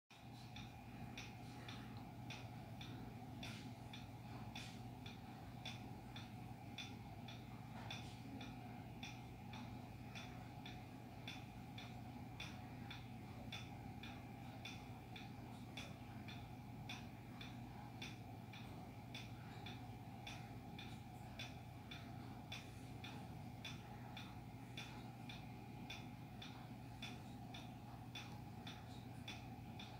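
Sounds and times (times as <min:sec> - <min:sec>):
ceiling fan humming: 0:00.1 - 0:29.9
fan ticking: 0:00.1 - 0:29.9.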